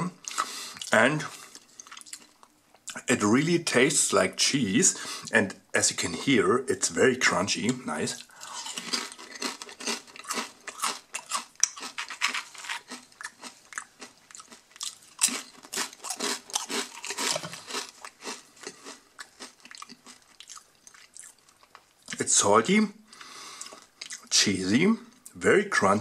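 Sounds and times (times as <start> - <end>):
person chewing crisp chips: 0.2 - 3.0, 7.6 - 22.2.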